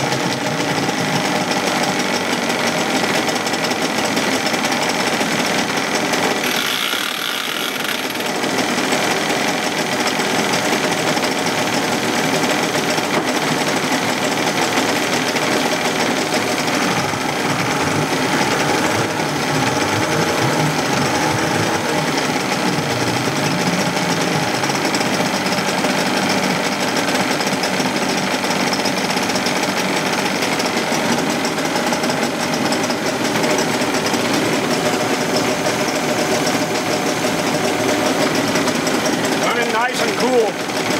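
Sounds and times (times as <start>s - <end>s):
outboard engine running rough: 0.0s - 40.9s.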